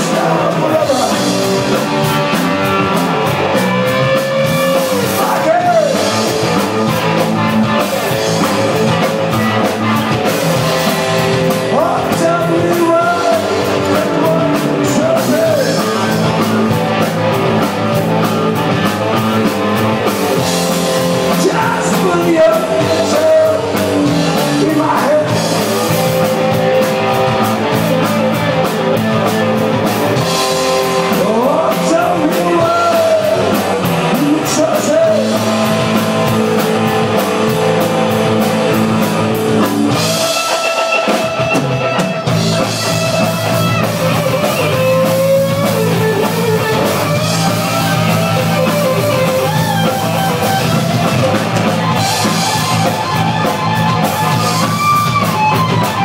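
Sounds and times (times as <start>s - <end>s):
man singing: 0.0s - 1.9s, 3.9s - 9.0s, 11.5s - 17.1s, 20.4s - 26.2s, 30.9s - 37.2s
live rock band playing: 0.0s - 56.0s.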